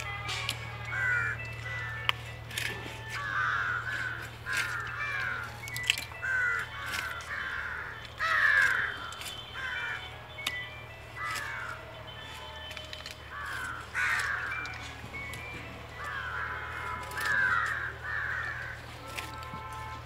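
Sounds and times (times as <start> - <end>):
crows cawing: 0.0 - 20.0.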